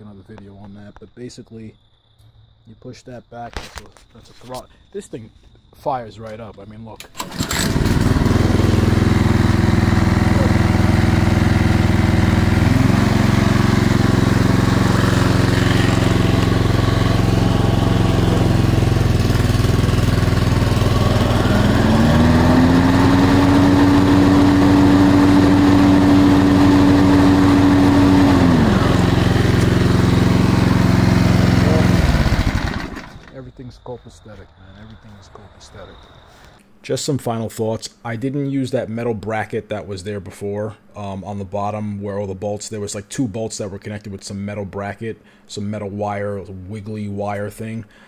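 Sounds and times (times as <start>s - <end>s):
mower engine running: 7.2s - 33.4s.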